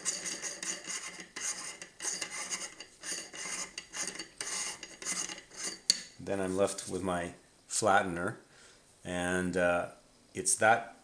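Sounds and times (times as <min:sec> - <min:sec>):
metal threads scraping: 0:00.0 - 0:07.0.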